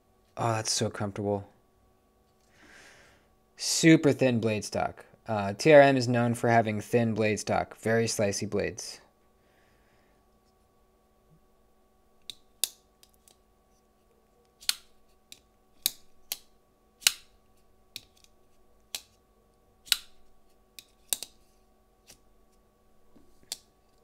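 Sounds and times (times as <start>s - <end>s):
folding knife clicking: 14.6s - 17.3s, 19.9s - 20.2s, 20.8s - 21.3s.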